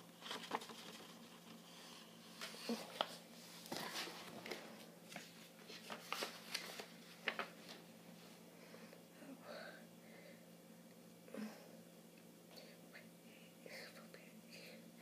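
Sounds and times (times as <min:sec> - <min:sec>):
book handling rustles: 0:00.0 - 0:07.9.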